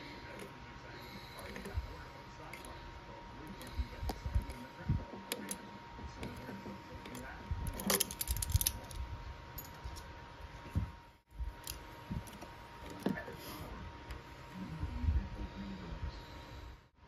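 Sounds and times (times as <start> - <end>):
pliers clinking on metal: 7.7 - 9.0.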